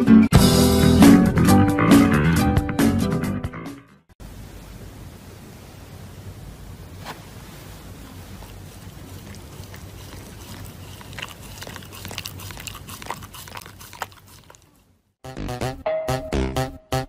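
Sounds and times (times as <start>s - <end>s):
steady hiss: 4.2s - 9.5s
dog chewing paper mask: 8.2s - 14.9s.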